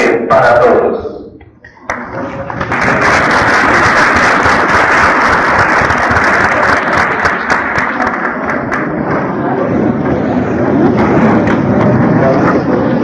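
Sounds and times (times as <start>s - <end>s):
audience applauding: 1.8s - 9.0s.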